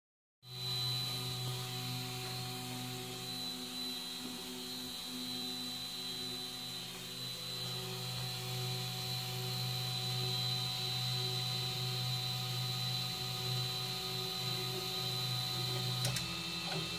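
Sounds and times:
three d printer motors humming: 0.5s - 16.9s.

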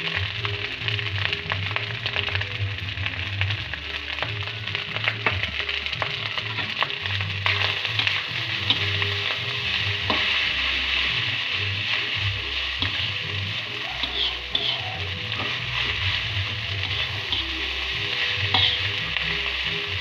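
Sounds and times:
rice sizzling in a wok: 0.0s - 20.0s
metal spatula scraping a wok: 6.0s - 20.0s.

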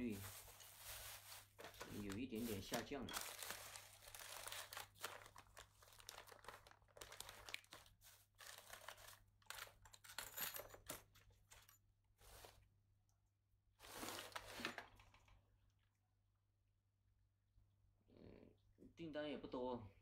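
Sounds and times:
wrapping crinkling: 0.0s - 9.9s.

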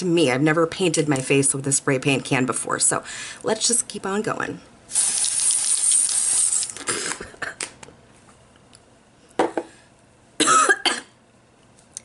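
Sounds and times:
aerosol can spraying: 4.9s - 6.7s.

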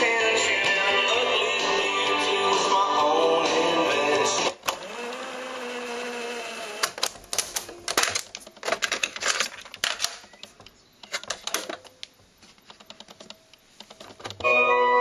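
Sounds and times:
music from radio-cassette recorder: 0.0s - 4.6s, 12.6s - 15.0s
cassette door opening and shutting: 13.9s - 14.6s.

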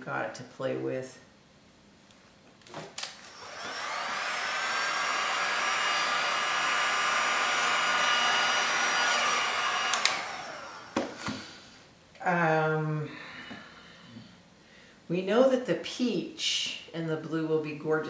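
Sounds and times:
heat gun fan whine: 3.0s - 11.6s
heat gun switch click: 9.8s - 10.3s.

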